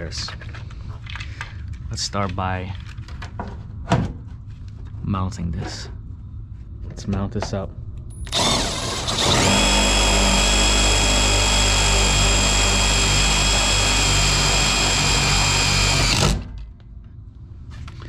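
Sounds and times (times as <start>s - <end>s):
power drill running: 8.3s - 16.5s.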